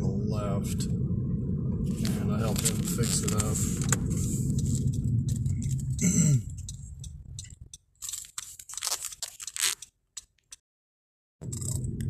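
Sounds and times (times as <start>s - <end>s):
car road noise: 0.0s - 10.4s, 11.4s - 12.0s
crackles and rustles: 1.8s - 10.6s.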